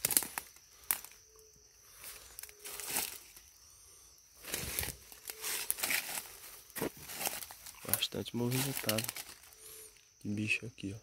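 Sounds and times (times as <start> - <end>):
footsteps crunching through dry leaves: 1.9 - 3.4, 4.4 - 9.7.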